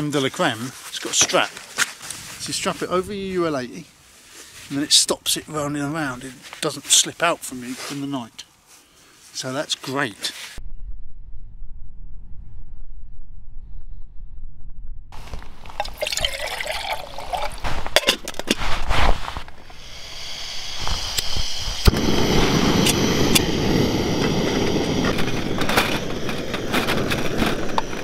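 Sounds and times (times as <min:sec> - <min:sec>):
gas burner hissing: 0:17.6 - 0:28.0.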